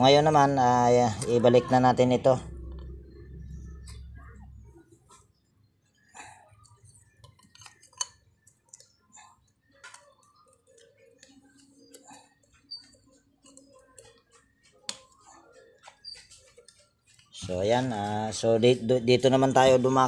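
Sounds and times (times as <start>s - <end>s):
metal parts clicking and clinking: 6.6s - 8.8s.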